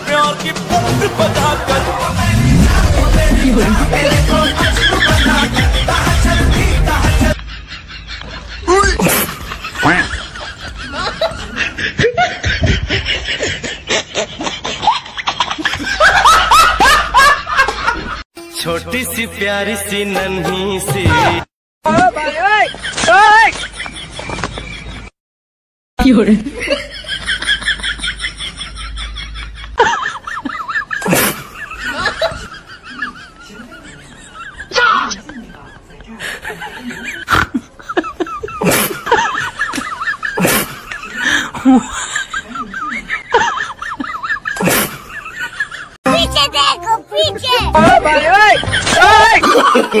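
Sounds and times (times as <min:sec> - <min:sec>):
person laughing: 0:03.1 - 0:14.9, 0:46.2 - 0:50.0.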